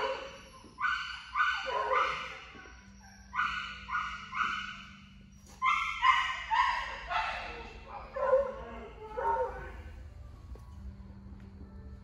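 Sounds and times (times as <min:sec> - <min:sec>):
dog yipping: 0:00.0 - 0:09.6.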